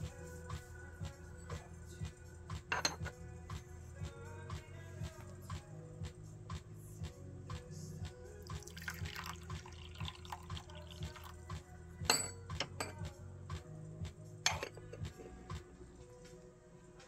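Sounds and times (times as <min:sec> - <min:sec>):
background music: 0:00.0 - 0:17.0
tea trickling into cups: 0:08.5 - 0:11.5
teaware clinking: 0:12.1 - 0:13.0.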